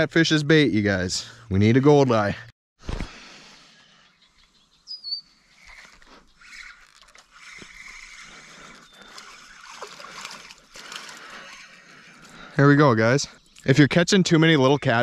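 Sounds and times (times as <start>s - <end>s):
fishing reel cranking: 5.6s - 12.2s
water splashing: 6.7s - 12.0s.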